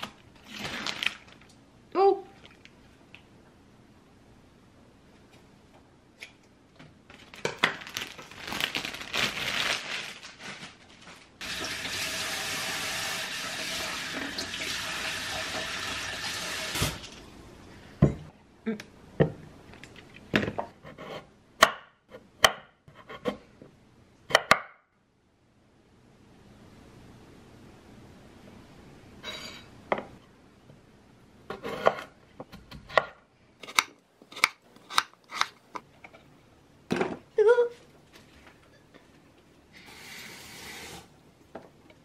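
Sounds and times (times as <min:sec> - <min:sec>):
rustling: 0:07.1 - 0:11.4.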